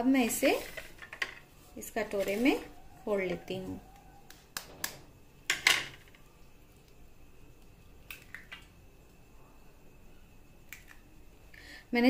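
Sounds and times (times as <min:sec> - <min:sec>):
eggs cracking into metal bowl: 0:08.0 - 0:08.7.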